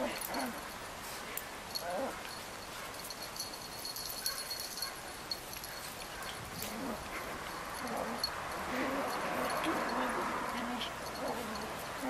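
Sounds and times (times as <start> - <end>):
dogs play growling: 0.0 - 2.4, 5.5 - 12.0
dog paws tapping on stone: 0.2 - 12.0.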